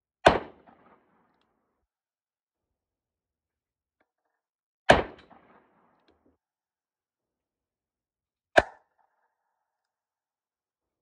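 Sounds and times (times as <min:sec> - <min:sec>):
revolver gunshot with echo: 0:00.2 - 0:01.0, 0:04.9 - 0:05.8.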